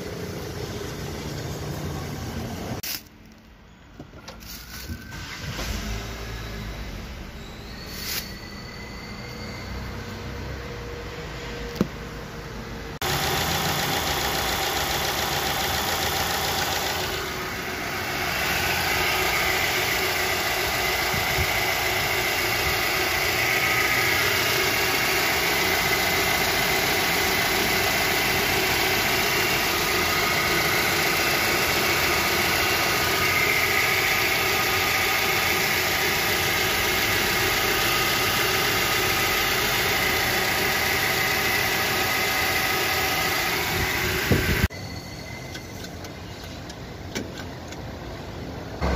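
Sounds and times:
car engine idling: 0:00.0 - 0:02.8, 0:11.8 - 0:44.7.

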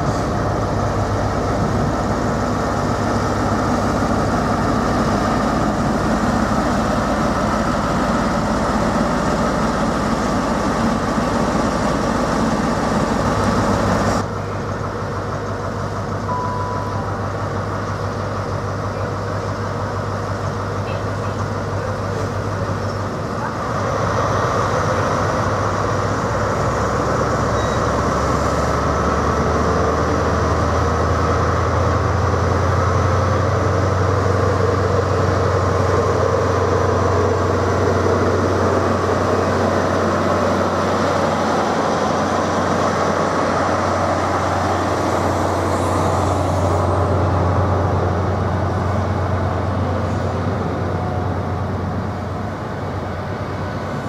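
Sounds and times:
diesel engine droning: 0:00.0 - 0:54.0
train coaches rolling on rails: 0:00.0 - 0:54.0.

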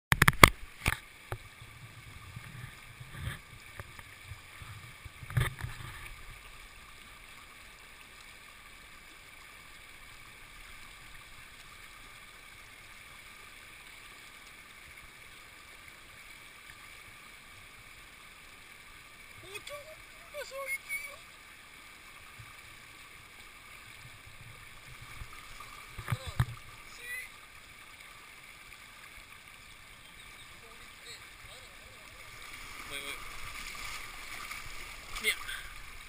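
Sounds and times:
water sloshing and thumps: 0:00.1 - 0:06.4, 0:24.0 - 0:27.0
river rushing: 0:18.3 - 0:21.4, 0:22.2 - 0:36.0.

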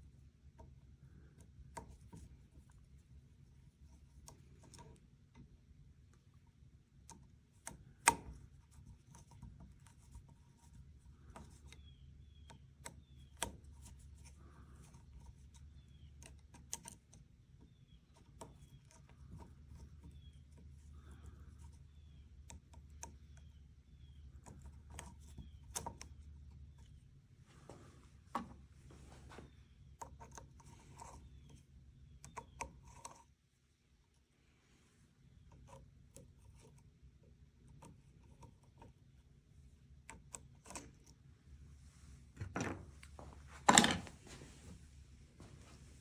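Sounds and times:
low steady hum: 0:00.0 - 0:46.0
metal parts clicking and tapping: 0:43.6 - 0:44.1.

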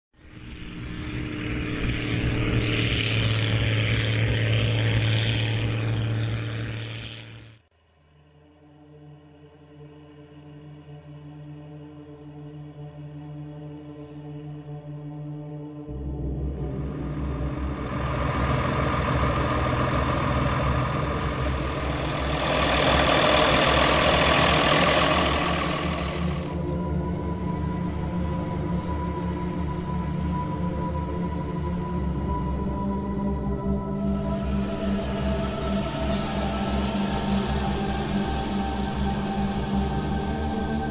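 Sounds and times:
engine drone: 0:00.2 - 0:07.7, 0:15.9 - 0:40.9.

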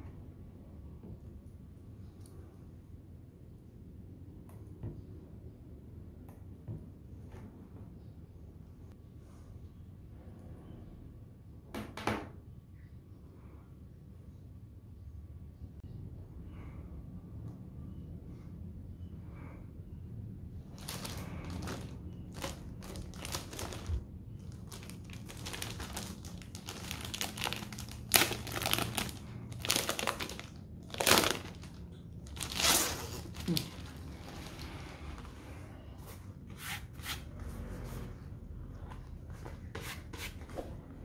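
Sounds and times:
plastic bag crinkling: 0:20.7 - 0:35.2.

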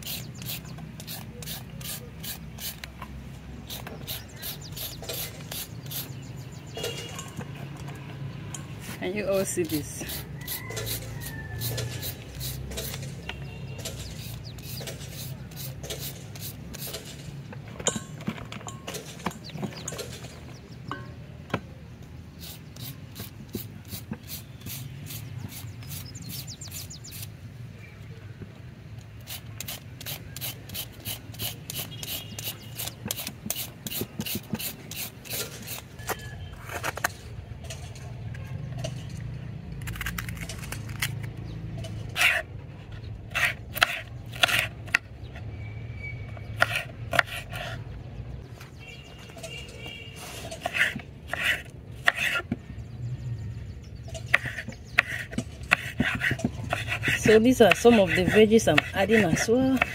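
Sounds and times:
carrot grating: 0:29.2 - 0:37.2, 0:39.8 - 0:45.4, 0:46.4 - 0:47.9, 0:49.4 - 0:52.6, 0:54.2 - 0:59.9
knife chopping on wooden board: 0:54.3 - 0:59.9.

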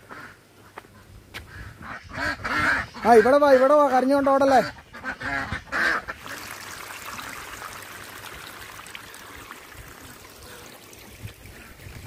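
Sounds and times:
water running and trickling: 0:06.1 - 0:12.0.

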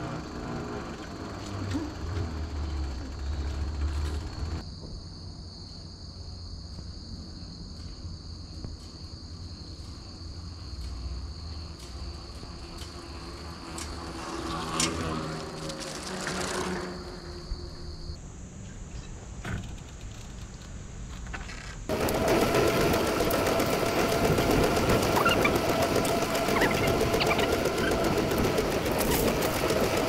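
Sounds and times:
insects trilling: 0:00.0 - 0:19.2, 0:24.9 - 0:30.0.

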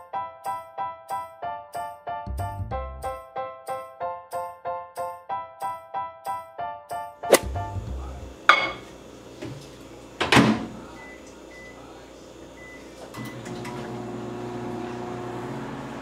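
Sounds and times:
microwave oven humming: 0:07.4 - 0:16.0.

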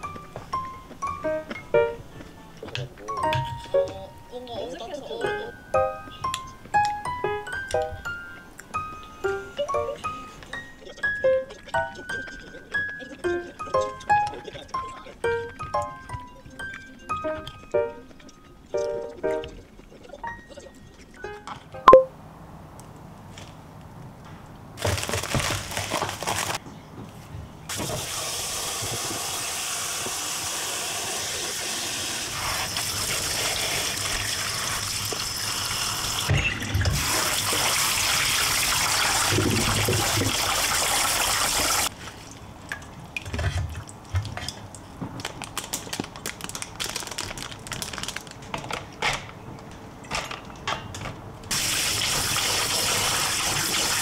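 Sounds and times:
tap water running into colander: 0:27.7 - 0:41.9, 0:51.5 - 0:54.0.

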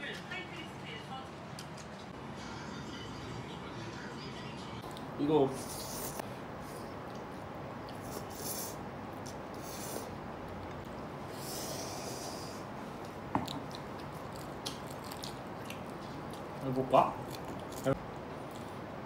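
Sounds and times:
person chewing: 0:06.8 - 0:18.9.

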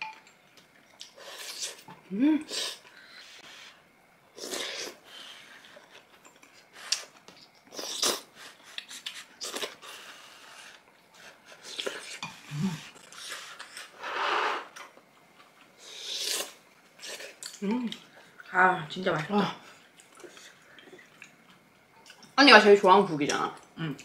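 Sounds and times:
slurping and chewing soup: 0:04.3 - 0:18.5.

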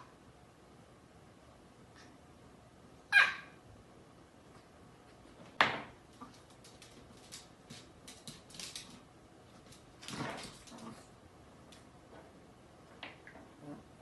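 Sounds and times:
small dog barking: 0:03.1 - 0:03.6
dog claws on wooden floor: 0:05.4 - 0:11.0.

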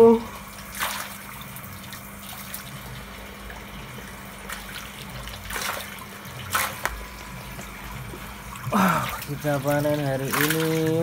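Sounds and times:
running water: 0:00.0 - 0:11.0
water splashing in a pond: 0:00.7 - 0:02.7, 0:04.4 - 0:07.2, 0:08.4 - 0:11.0.

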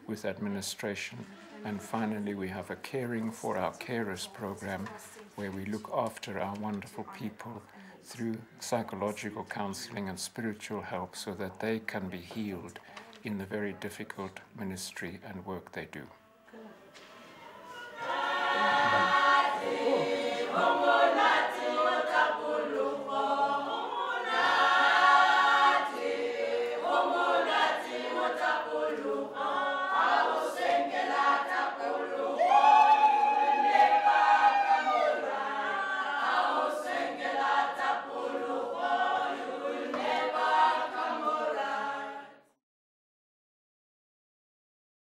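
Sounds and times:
women's choir singing in harmony: 0:17.2 - 0:42.6.

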